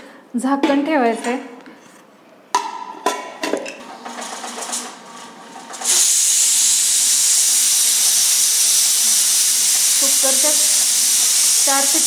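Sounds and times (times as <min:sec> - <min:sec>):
pressure cooker steam hissing: 0:05.7 - 0:12.0.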